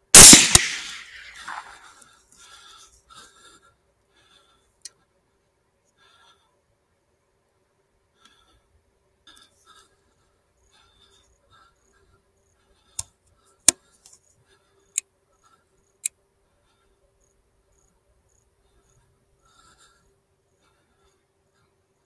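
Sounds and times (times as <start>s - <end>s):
crickets chirping: 8.3s - 22.0s.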